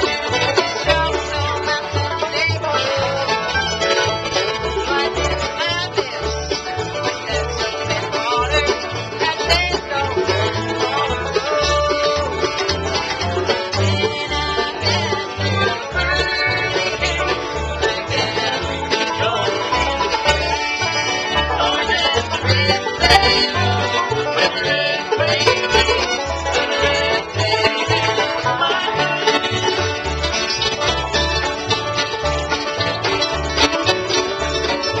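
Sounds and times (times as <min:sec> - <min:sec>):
acoustic guitar picking: 0:00.0 - 0:35.0
bass line: 0:00.0 - 0:35.0
resonator guitar picking: 0:00.0 - 0:35.0.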